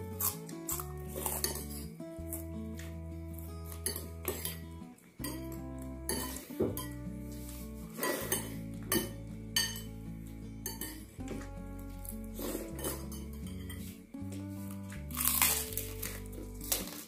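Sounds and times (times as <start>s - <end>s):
background music: 0.0s - 17.0s
cutlery clinking on ceramic bowls: 1.2s - 1.9s, 3.8s - 4.6s, 5.2s - 7.0s, 8.0s - 9.9s, 10.6s - 11.1s, 12.7s - 14.0s.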